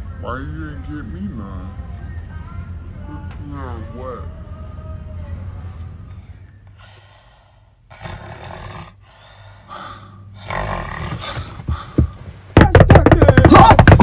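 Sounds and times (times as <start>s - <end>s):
woman snoring: 7.9s - 9.1s, 9.7s - 11.6s.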